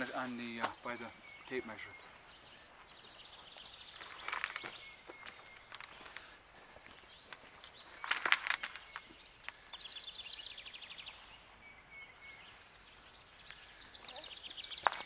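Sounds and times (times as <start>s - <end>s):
songbird trilling: 0.0s - 6.2s.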